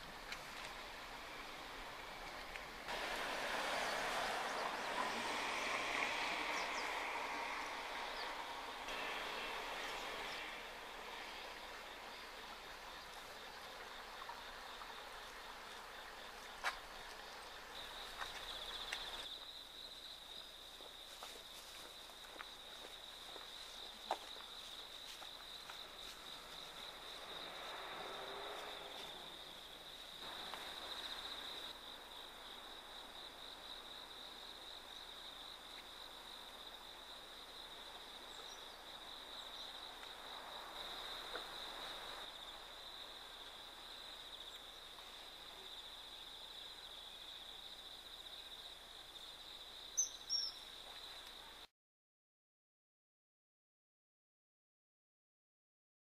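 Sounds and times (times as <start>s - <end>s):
insects chirring: 0.0s - 51.7s.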